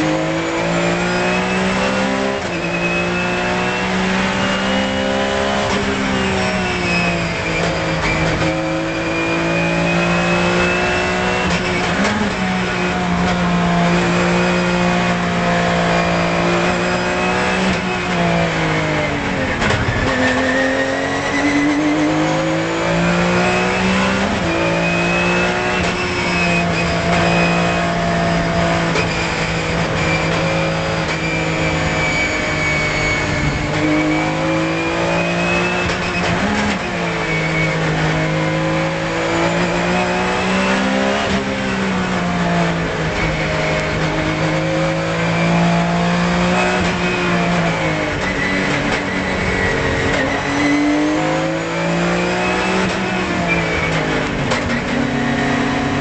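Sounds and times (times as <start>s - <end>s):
race car engine at high revs: 0.0s - 56.0s.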